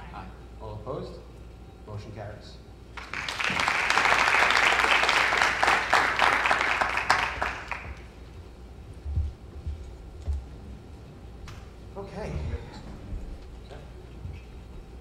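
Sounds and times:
applause: 0:02.9 - 0:08.1
low thumps: 0:08.8 - 0:10.7.

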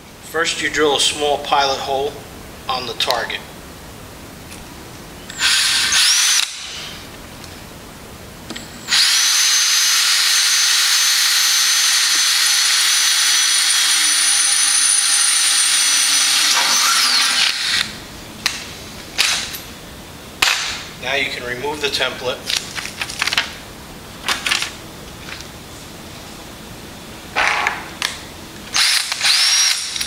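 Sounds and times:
electric drill whining: 0:05.3 - 0:07.0, 0:08.6 - 0:18.0, 0:28.7 - 0:30.0.

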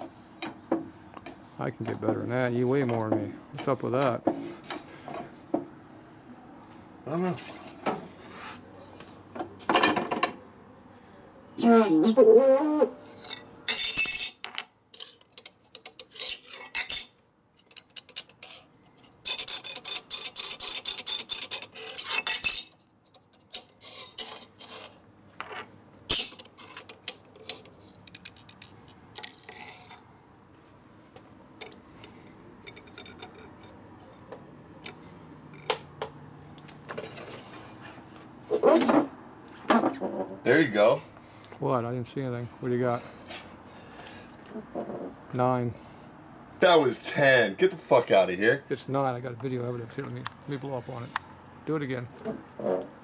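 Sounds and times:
metal clinking and rattling: 0:13.2 - 0:29.8.

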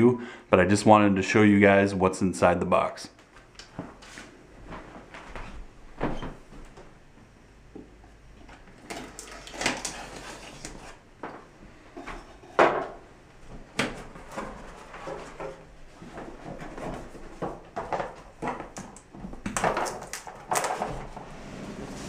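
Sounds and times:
cardboard box rustling and scraping: 0:09.7 - 0:11.0.

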